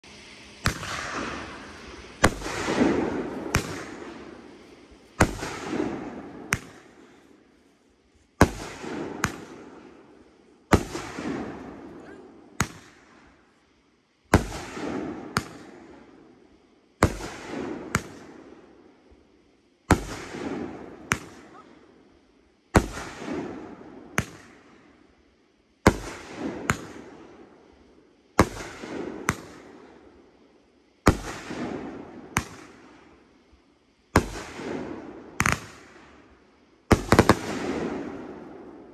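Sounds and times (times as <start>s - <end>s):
firework hiss: 0.0s - 13.7s, 34.2s - 38.9s.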